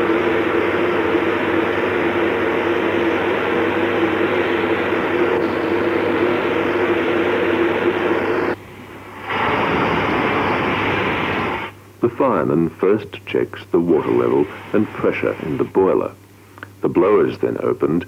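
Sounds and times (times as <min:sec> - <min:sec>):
steam locomotive hissing: 0:00.0 - 0:12.2, 0:13.8 - 0:16.0
low steady hum: 0:00.0 - 0:18.0.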